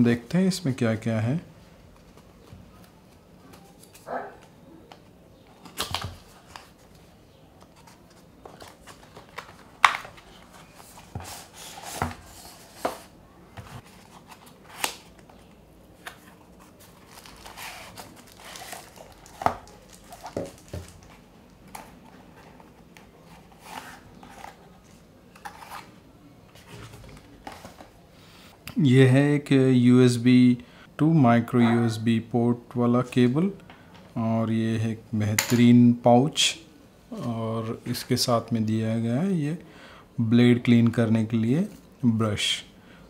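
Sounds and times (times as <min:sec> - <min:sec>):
paper wrappers rustling: 0:13.7 - 0:25.9.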